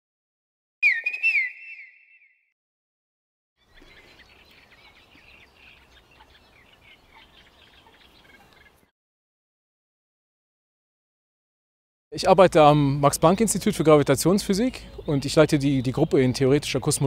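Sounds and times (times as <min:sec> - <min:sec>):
birdsong chirps: 0:00.8 - 0:02.5, 0:03.6 - 0:08.9, 0:12.6 - 0:17.0.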